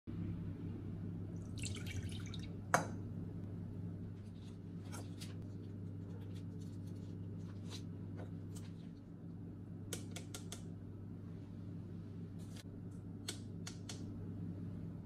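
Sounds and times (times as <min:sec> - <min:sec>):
steady low hum: 0:00.1 - 0:15.0
liquid dripping: 0:01.4 - 0:03.0.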